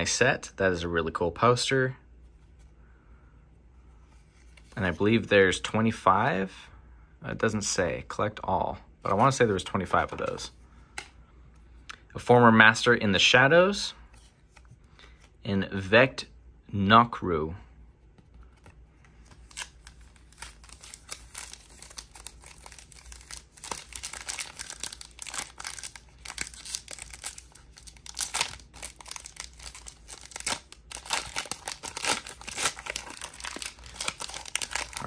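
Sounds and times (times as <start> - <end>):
foil wrapper tearing and crinkling: 19.4 - 35.0.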